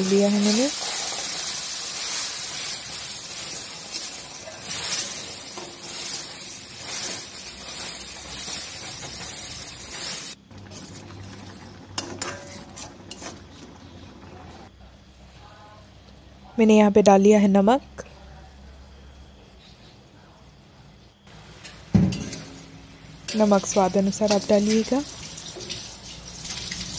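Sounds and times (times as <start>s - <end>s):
paste sizzling in hot oil: 0.0s - 13.5s, 21.3s - 26.9s
spatula scraping a steel pan: 3.9s - 10.9s, 12.0s - 13.7s.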